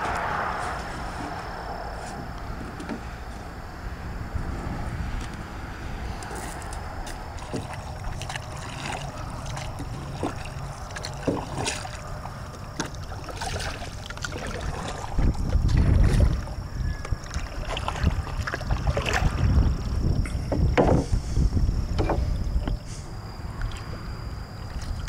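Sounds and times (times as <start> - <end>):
wind rumbling on microphone: 0.0 - 25.0
wooden paddle knocking hull: 20.3 - 21.2, 21.9 - 22.8.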